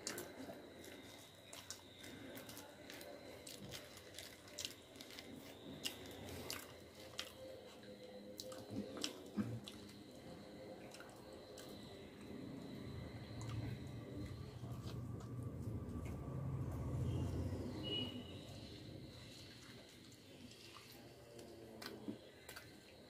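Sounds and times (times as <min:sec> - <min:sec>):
person chewing food: 0:00.0 - 0:12.4.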